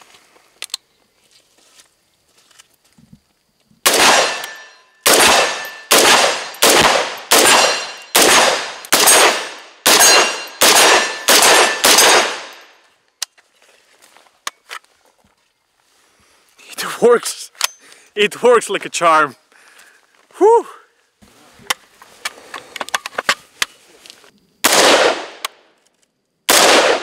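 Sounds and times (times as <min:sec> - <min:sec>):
rifle shots with echo: 0:03.9 - 0:12.7, 0:24.6 - 0:25.5, 0:26.5 - 0:27.0.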